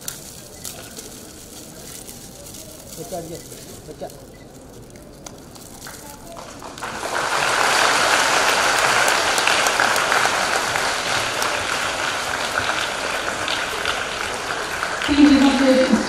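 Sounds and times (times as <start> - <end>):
audience applauding: 5.8 - 16.0.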